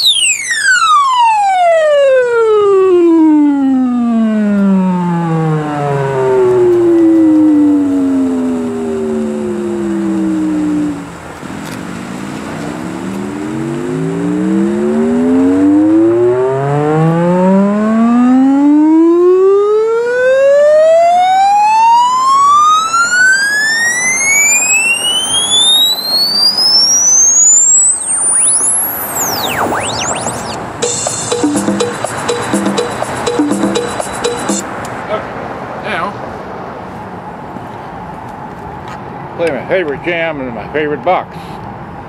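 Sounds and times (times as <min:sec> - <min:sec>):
electronic tone rising in pitch: 0:00.0 - 0:11.2, 0:12.6 - 0:34.6.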